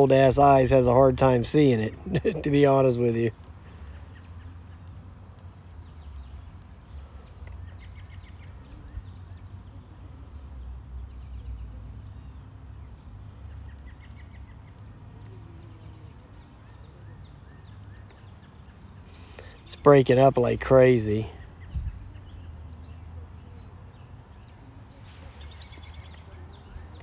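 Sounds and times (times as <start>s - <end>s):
wind rumbling on microphone: 21.6s - 22.4s.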